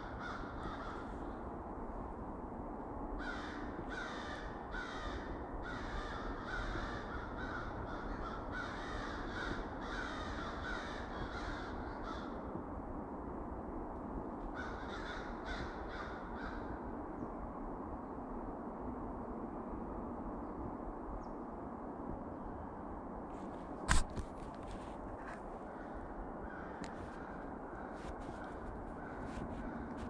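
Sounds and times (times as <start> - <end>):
crows cawing: 0.0 - 1.4, 3.2 - 12.4, 14.5 - 16.8, 25.2 - 30.0.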